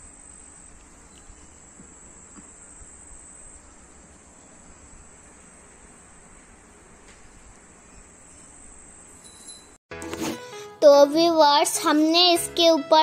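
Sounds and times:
insects trilling: 0.0 - 6.8.

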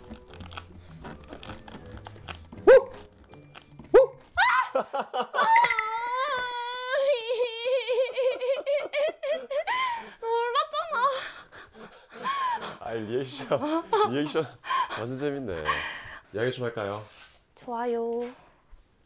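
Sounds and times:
giggling: 4.6 - 16.0.

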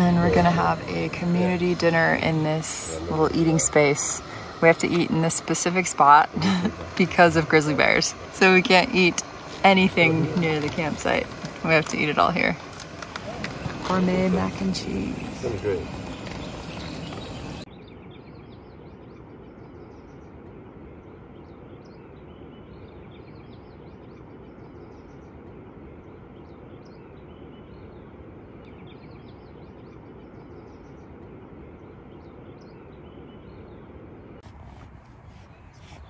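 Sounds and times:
steady background hiss: 0.0 - 17.7
small birds chirping: 0.0 - 36.0.

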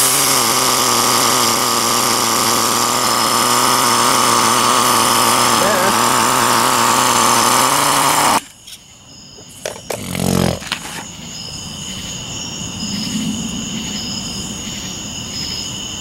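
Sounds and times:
model engine buzzing: 0.0 - 8.5, 9.4 - 11.0
crickets chirping: 0.0 - 16.0.

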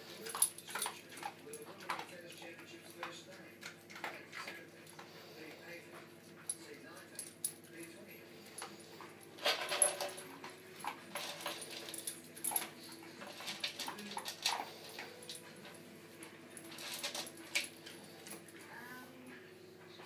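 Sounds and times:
dog crunching dry kibble: 0.0 - 5.7.

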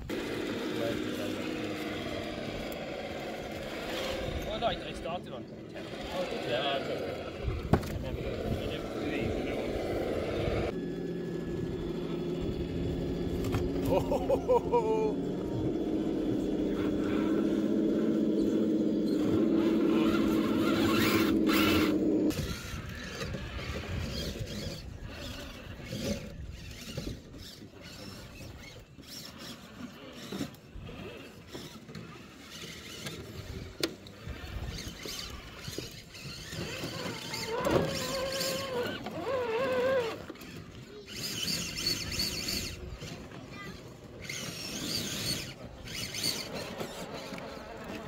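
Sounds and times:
electric motor whining: 0.0 - 48.0
loud steady hum: 7.8 - 22.9.

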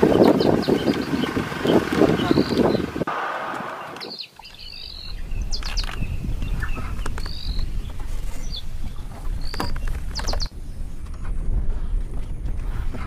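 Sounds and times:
birds chirping: 0.0 - 10.8
steady low rumble: 4.7 - 13.0.

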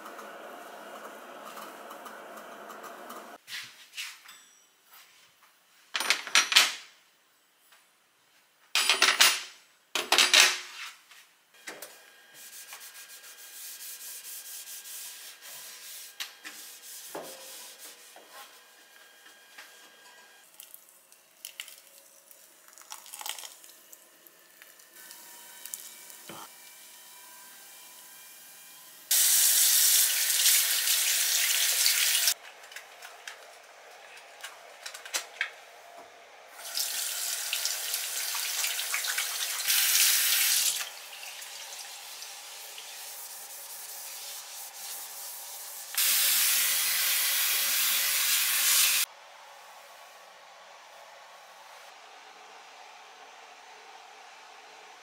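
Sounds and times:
cloth wiping glass cooktop: 12.4 - 18.9.

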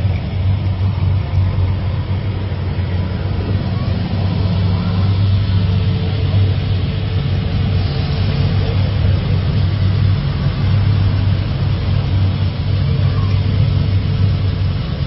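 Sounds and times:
pickup engine idling: 0.0 - 15.0.

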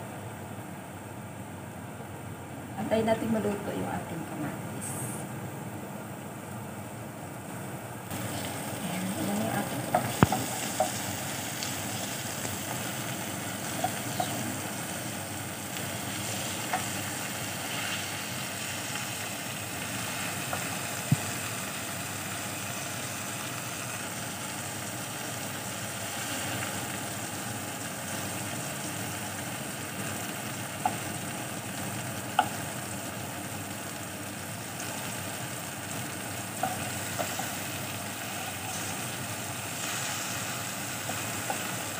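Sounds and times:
vegetables sizzling in a frying pan: 2.2 - 41.9
wooden spoon knocking on pan: 9.8 - 11.2, 20.5 - 21.4, 32.3 - 32.6, 36.6 - 37.6.

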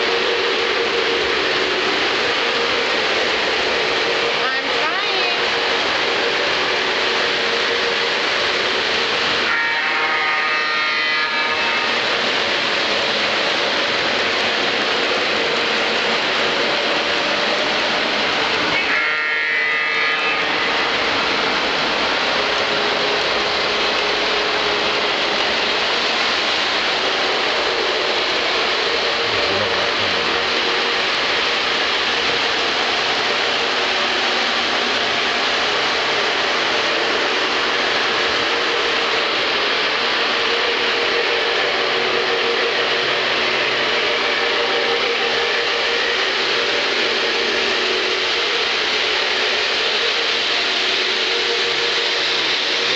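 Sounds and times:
model train whirring rattle: 0.0 - 52.9.

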